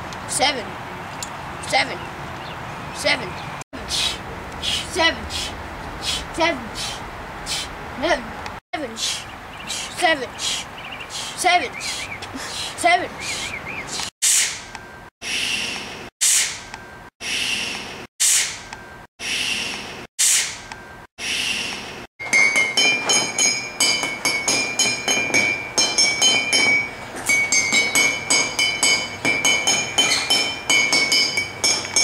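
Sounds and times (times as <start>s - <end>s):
glass mugs struck ringing: 22.2s - 32.0s.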